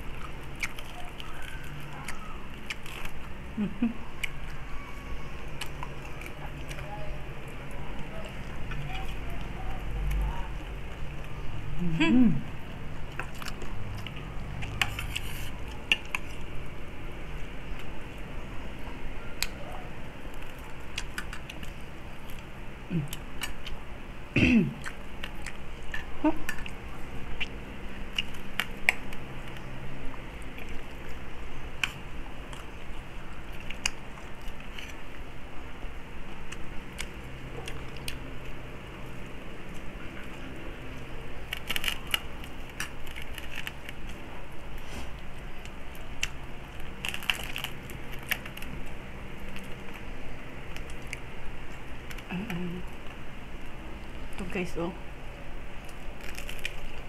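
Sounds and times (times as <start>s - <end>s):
chewing: 0.0s - 4.8s, 5.5s - 11.4s, 12.5s - 16.5s, 18.8s - 23.8s, 24.8s - 35.3s, 36.2s - 53.2s
fingers tearing crispy meat: 0.0s - 11.4s, 13.0s - 16.5s, 36.0s - 53.2s, 55.8s - 57.0s.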